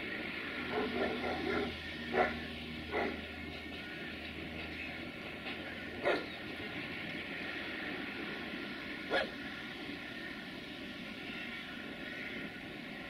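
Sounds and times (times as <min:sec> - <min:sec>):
freight train rolling: 0:00.0 - 0:13.0
dog barking: 0:00.7 - 0:03.2, 0:06.0 - 0:06.3, 0:09.1 - 0:09.4.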